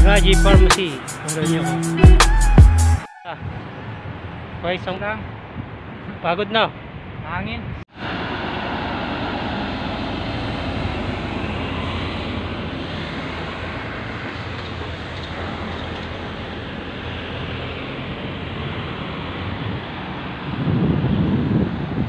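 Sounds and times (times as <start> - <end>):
road traffic noise: 0.0 - 22.0
truck engine running low: 7.9 - 22.0.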